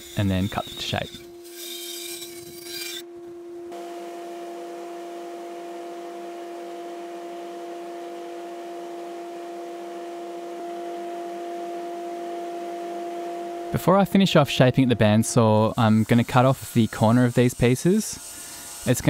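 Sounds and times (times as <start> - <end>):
bandsaw cutting wood: 0.0 - 3.1, 13.4 - 19.0
steady pure tone hum: 0.0 - 17.3.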